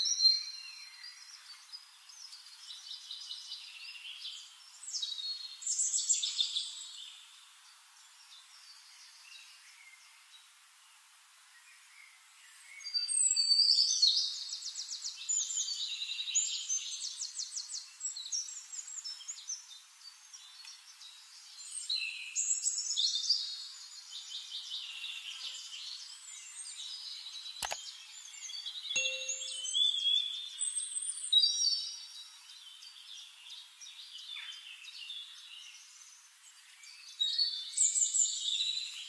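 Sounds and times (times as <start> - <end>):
songbirds chirping: 0.0 - 39.0
sharp click: 27.6 - 27.8
low chime: 29.0 - 30.0.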